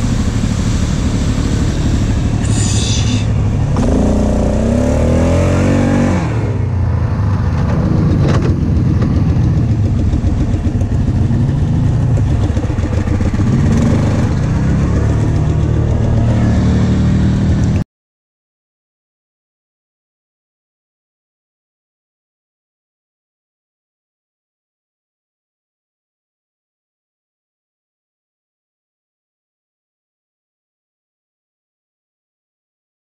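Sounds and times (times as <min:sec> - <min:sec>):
atv engine running: 0:00.0 - 0:17.8
off-road vehicle driving past: 0:00.0 - 0:17.8.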